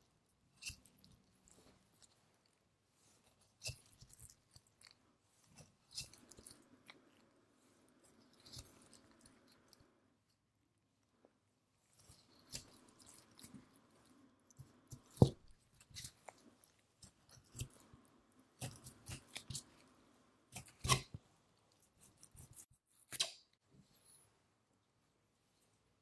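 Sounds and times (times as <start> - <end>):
knife slicing fat wet crackling: 18.6 - 19.7, 20.5 - 21.1.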